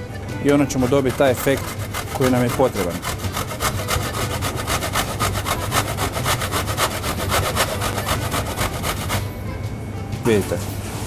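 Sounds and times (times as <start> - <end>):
orange scraping on metal grater: 0.7 - 9.3.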